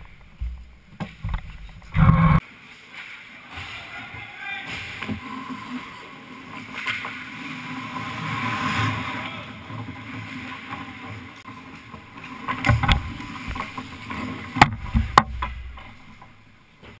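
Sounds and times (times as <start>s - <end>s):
skates scraping on ice: 0.0s - 16.5s
sticks and puck clacking: 11.6s - 17.0s.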